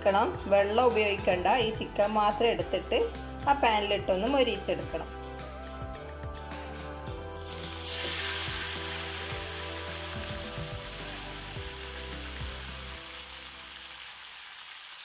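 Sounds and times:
soft background music: 0.0 - 14.4
chicken sizzling in hot oil: 7.4 - 15.0.

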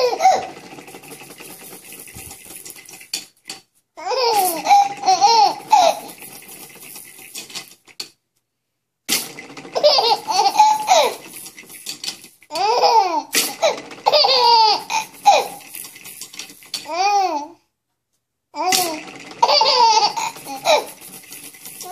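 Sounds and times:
baby giggling: 0.0 - 0.5, 4.0 - 6.2, 9.8 - 11.2, 12.5 - 15.6, 18.6 - 21.0.

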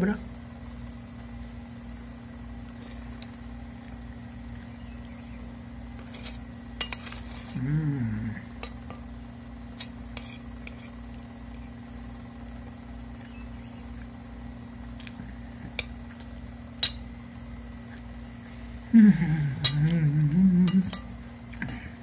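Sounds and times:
steady low hum: 0.0 - 22.0
person humming: 7.4 - 8.6, 18.9 - 22.0
metal spoon clinking on plate: 20.7 - 21.1.

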